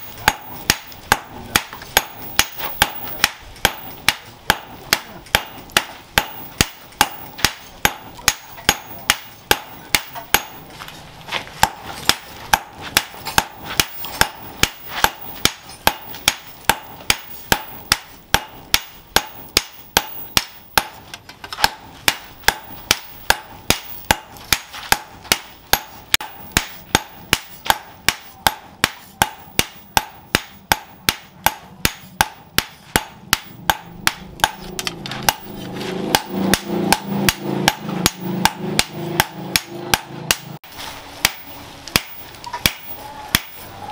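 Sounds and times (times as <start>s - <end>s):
hammer blows on anvil ringing: 0.0s - 10.7s, 21.6s - 40.5s.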